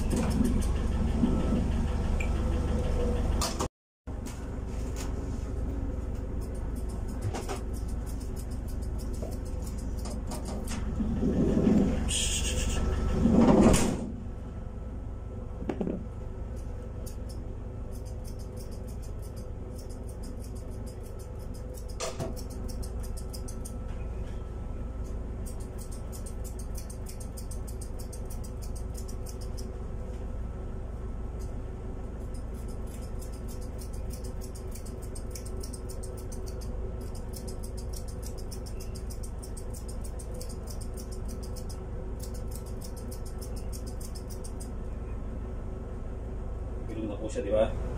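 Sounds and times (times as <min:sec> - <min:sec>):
low hum: 0:00.0 - 0:47.0
shears snipping fur: 0:04.7 - 0:11.1, 0:16.5 - 0:23.9, 0:25.0 - 0:30.2, 0:31.4 - 0:44.8.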